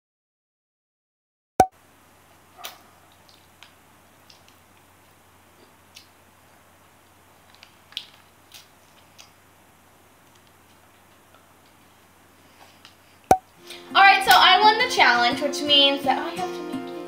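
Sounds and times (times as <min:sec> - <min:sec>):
faint room hum: 0:01.7 - 0:17.0
lip smacks licking ice cream: 0:02.6 - 0:06.2, 0:07.4 - 0:09.4.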